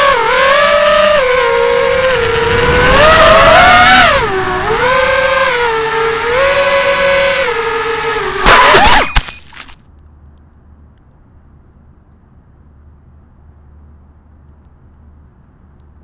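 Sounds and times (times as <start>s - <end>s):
drone motors whining: 0.0s - 9.1s.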